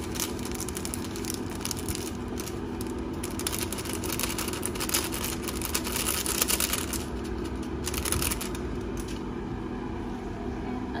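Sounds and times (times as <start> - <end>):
seasoning sachet being shaken: 0.0 - 9.1
steady low hum: 0.0 - 11.0.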